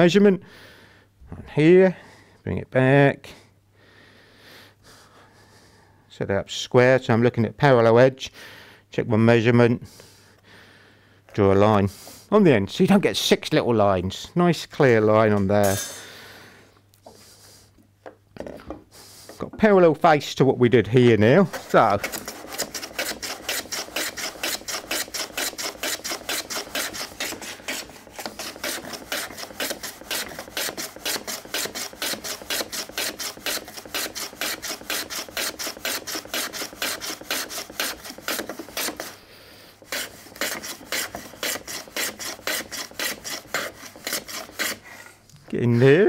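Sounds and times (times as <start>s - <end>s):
plane shaving end grain: 21.4s - 45.0s.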